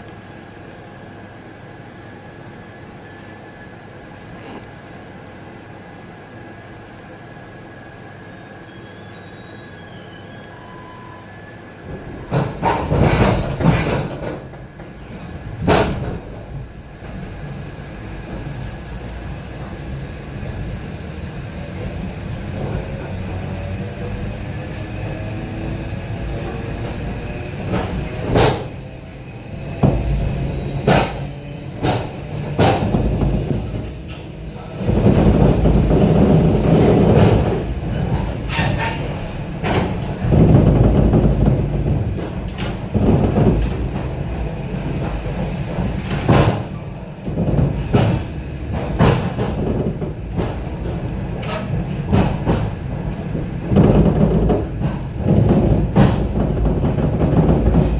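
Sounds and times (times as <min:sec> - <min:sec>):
train wheels clattering over rail joints: 0:11.9 - 0:17.2, 0:26.4 - 0:28.8, 0:29.6 - 0:57.9.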